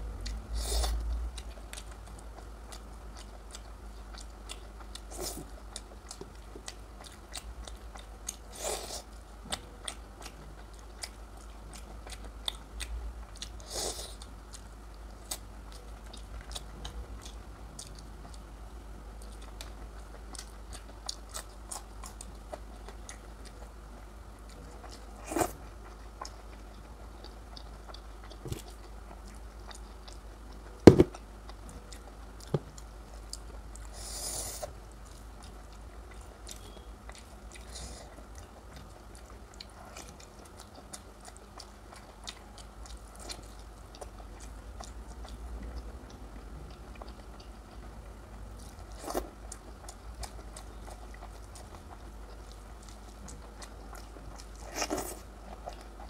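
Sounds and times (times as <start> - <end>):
person chewing food: 0.0 - 18.5, 19.2 - 56.0
low steady hum: 0.0 - 56.0
sharp knock: 30.9 - 31.1.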